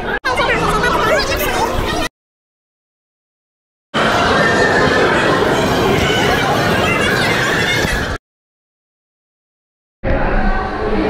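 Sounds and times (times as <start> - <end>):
dense background noise: 0.0 - 2.1, 4.0 - 8.2
indistinct chatter: 0.0 - 2.1, 4.0 - 8.2.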